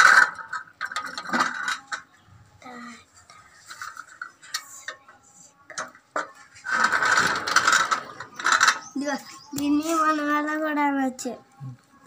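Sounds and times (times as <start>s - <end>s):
metal toy parts clattering: 0.0s - 2.0s, 5.7s - 9.1s.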